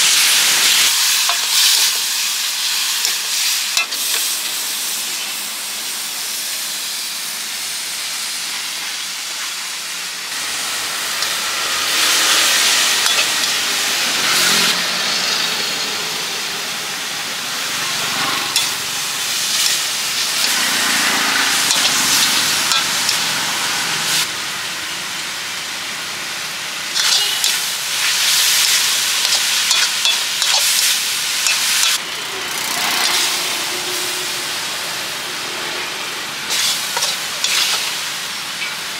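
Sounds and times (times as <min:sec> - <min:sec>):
noodles sizzling in a wok: 0:00.0 - 0:38.9
metal spatula clinking on wok: 0:13.0 - 0:13.6, 0:27.0 - 0:27.6, 0:28.6 - 0:30.8, 0:36.5 - 0:37.9.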